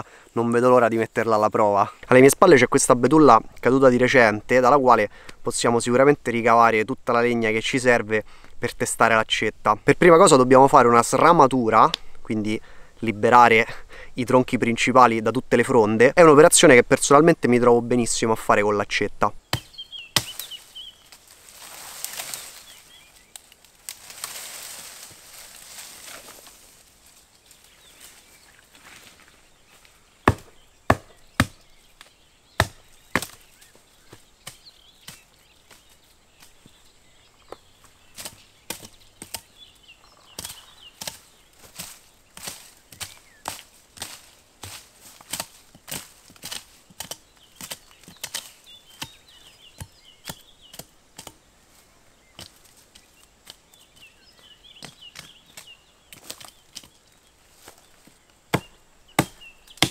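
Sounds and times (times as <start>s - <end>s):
hatchet chopping branches: 19.5s - 22.6s, 30.2s - 31.6s, 32.6s - 33.5s, 38.2s - 39.6s, 40.3s - 51.4s, 52.3s - 54.2s, 54.8s - 57.0s, 58.5s - 59.9s.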